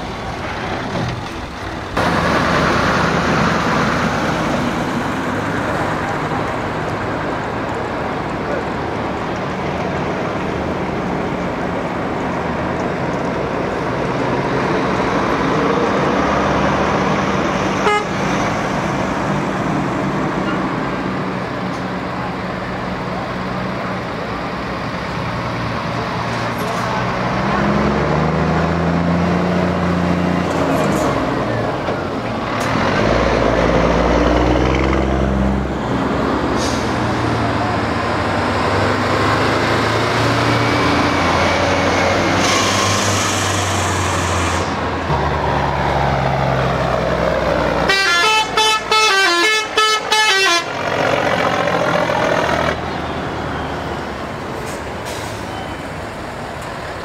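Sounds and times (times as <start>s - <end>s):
diesel trucks driving past: 0.0s - 57.0s
musical air horn tune: 17.8s - 18.1s, 47.9s - 50.7s.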